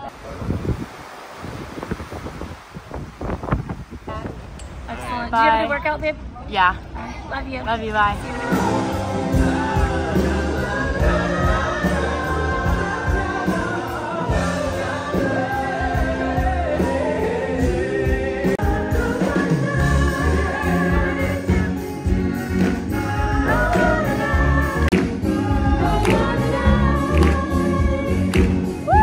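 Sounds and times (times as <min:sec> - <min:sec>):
band with keyboards and bass: 0:07.8 - 0:29.0
male vocal group singing: 0:08.1 - 0:29.0.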